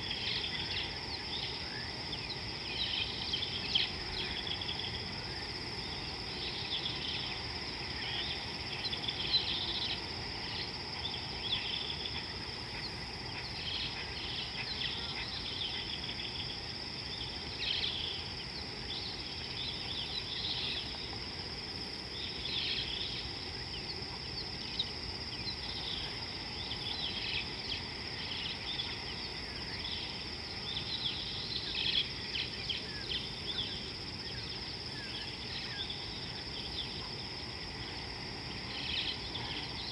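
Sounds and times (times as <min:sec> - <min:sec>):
faint low background hiss: 0:00.0 - 0:39.9
high insect drone: 0:00.0 - 0:39.9.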